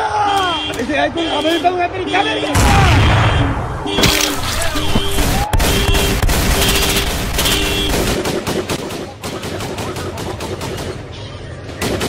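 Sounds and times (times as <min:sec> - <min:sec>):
automatic gunfire: 0:04.6 - 0:11.1.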